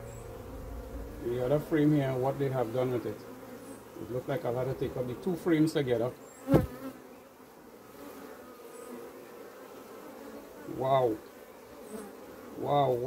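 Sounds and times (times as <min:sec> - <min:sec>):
honey bees buzzing: 0:00.0 - 0:13.0
hive tool knocking on wood: 0:06.5 - 0:06.8.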